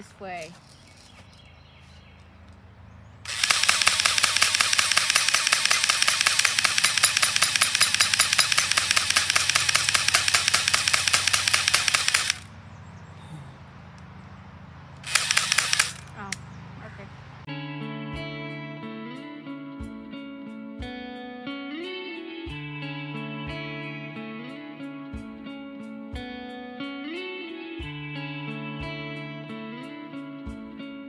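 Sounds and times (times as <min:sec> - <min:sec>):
airsoft gun firing full auto: 0:03.3 - 0:12.5, 0:15.0 - 0:16.1.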